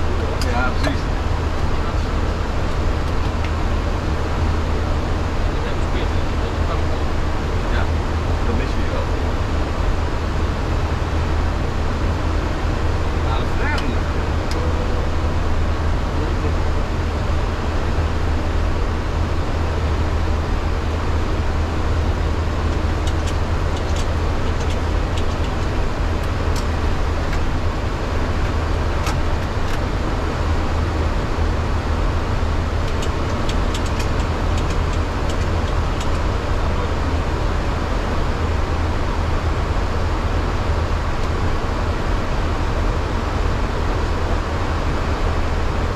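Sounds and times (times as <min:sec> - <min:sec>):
airplane engine and airflow: 0:00.0 - 0:45.9
deep rumble: 0:00.0 - 0:45.9.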